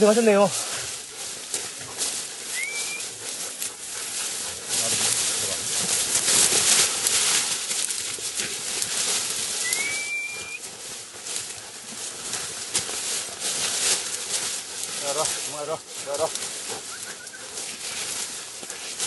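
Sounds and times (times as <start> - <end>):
dry grass rustling and crackling: 0.0 - 19.0
short rising whistle: 2.5 - 3.1, 9.6 - 10.6.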